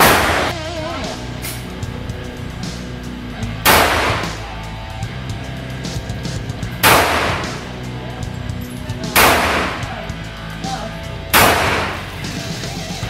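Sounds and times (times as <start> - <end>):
pistol shots echoing indoors: 0.0 - 0.6, 3.6 - 4.4, 6.8 - 7.7, 9.2 - 9.9, 11.3 - 12.2
background music: 0.0 - 13.0.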